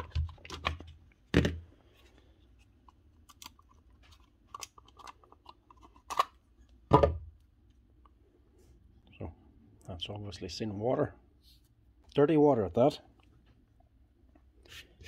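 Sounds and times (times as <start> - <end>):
plastic casing clicks and scrapes: 2.9 - 6.4.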